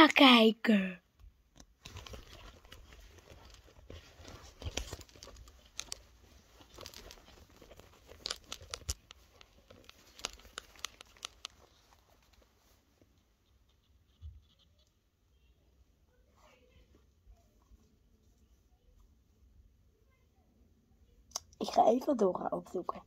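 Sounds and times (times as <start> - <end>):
phone being handled: 1.5 - 12.5.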